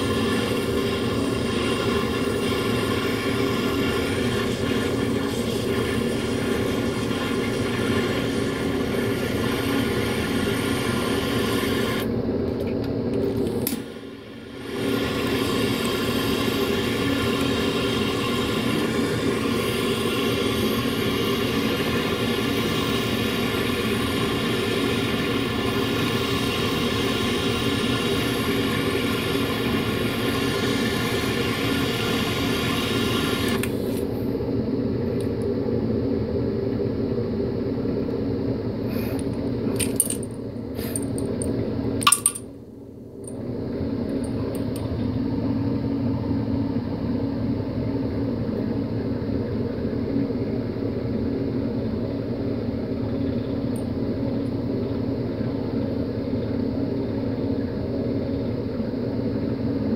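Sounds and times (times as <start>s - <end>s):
torch flame hissing: 0.0s - 12.1s, 13.6s - 34.3s.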